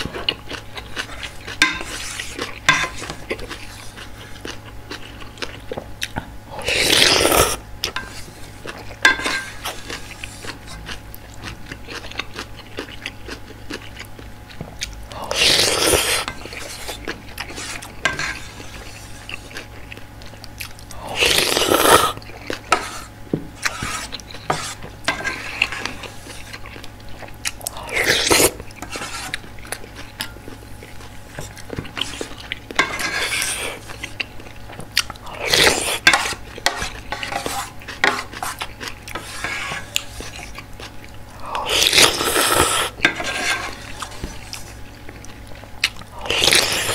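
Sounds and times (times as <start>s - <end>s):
chewing: 0.0s - 46.9s
slurping noodles: 6.6s - 7.6s, 15.3s - 19.6s, 21.0s - 26.6s, 27.8s - 29.4s, 41.6s - 44.8s, 46.2s - 46.9s.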